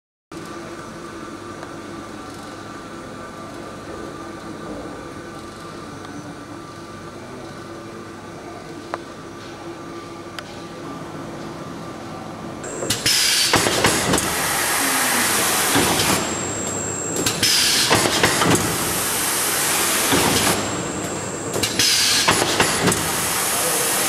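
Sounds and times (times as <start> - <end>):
packaging machine hiss and clatter: 12.7 - 24.0.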